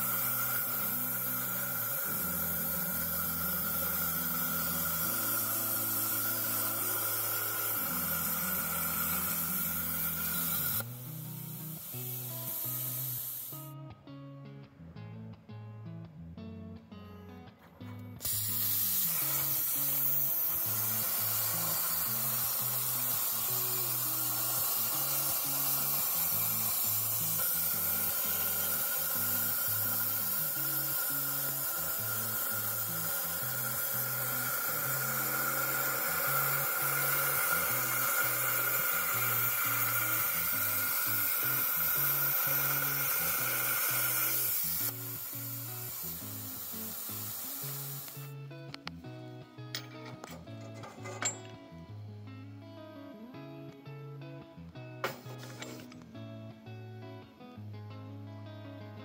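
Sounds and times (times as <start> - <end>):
plasma arc hissing: 0.0 - 13.6, 18.2 - 48.3.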